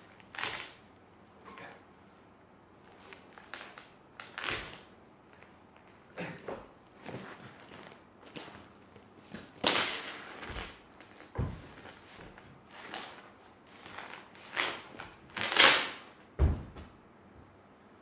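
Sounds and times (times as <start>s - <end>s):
heavy footfalls on wooden stage: 16.4s - 17.0s.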